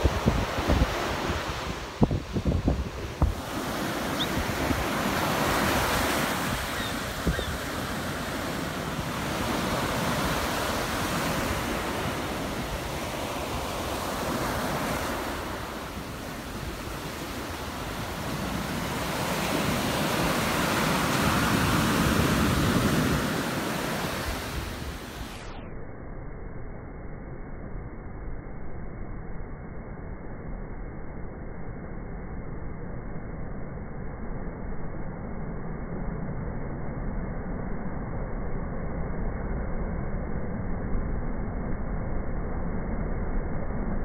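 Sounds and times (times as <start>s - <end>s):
ocean surf breaking: 0.0s - 25.4s.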